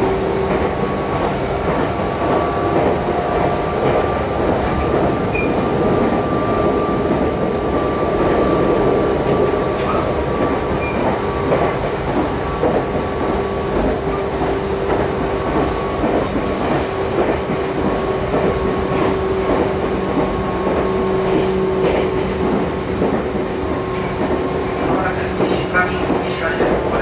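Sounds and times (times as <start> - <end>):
rail joint clicks: 0.0 - 27.0
wheels rumbling on rails: 0.0 - 27.0.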